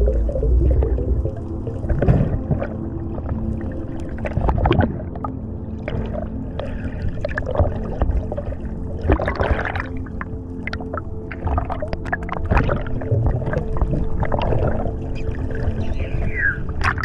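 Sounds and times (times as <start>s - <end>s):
steady low hum: 0.0s - 16.9s
muffled underwater water rushing: 0.0s - 17.0s
underwater clicks and knocks: 16.8s - 17.0s.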